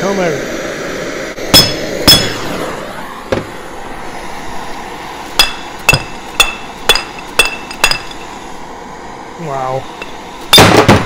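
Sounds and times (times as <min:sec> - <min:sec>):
ringing metallic knocks: 0:05.4 - 0:08.2.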